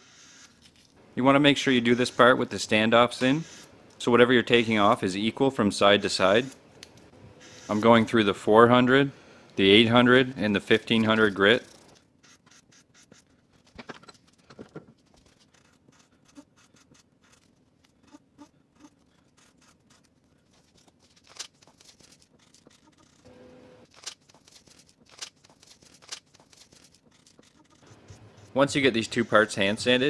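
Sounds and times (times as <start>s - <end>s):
sandpaper rasping on wood: 27.1s - 30.0s.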